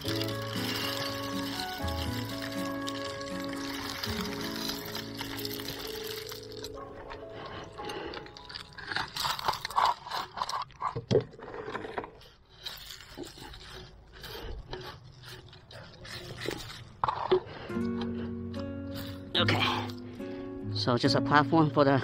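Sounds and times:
scraping and rustling in dry leaves: 0:00.0 - 0:06.8.

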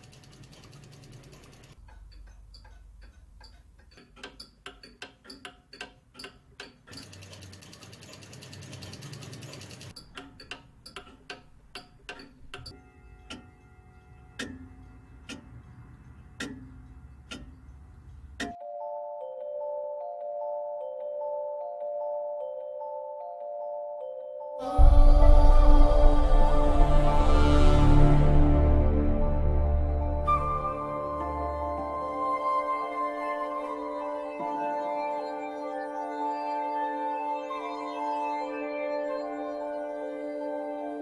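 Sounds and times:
mechanical clocks ticking: 0:00.0 - 0:18.6.

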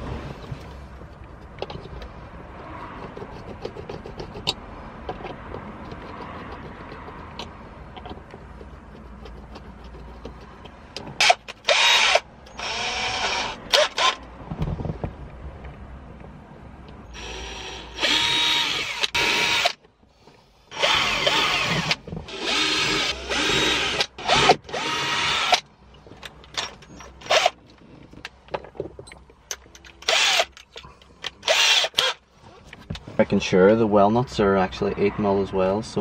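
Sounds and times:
cordless drill boring into plastic: 0:11.2 - 0:14.2, 0:17.2 - 0:19.8, 0:20.7 - 0:25.6, 0:30.0 - 0:30.5, 0:31.4 - 0:32.2.

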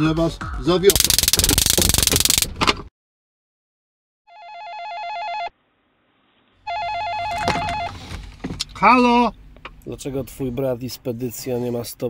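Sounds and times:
stun gun crackling buzz: 0:00.9 - 0:02.5
telephone ringing: 0:04.3 - 0:05.5, 0:06.7 - 0:08.0.

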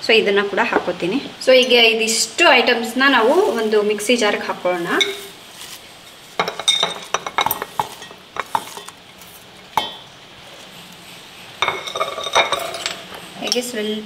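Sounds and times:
herbs rustling: 0:02.9 - 0:09.7.

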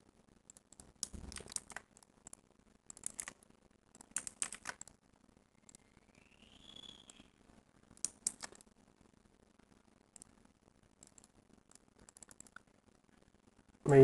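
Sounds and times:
faint keyboard typing: 0:00.4 - 0:05.9, 0:07.9 - 0:08.8, 0:09.7 - 0:12.8.

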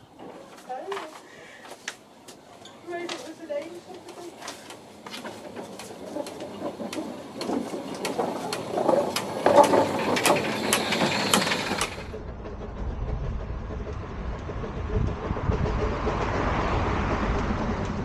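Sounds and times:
steam locomotive passing: 0:02.9 - 0:18.0
regular wheel clicking: 0:05.4 - 0:12.2
steam hissing from cylinders: 0:06.0 - 0:12.1
low rumble: 0:12.0 - 0:18.0.

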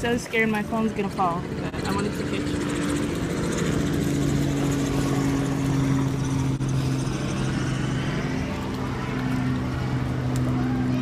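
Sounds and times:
constant rushing noise: 0:00.0 - 0:11.0
trolley engine running: 0:00.0 - 0:11.0.

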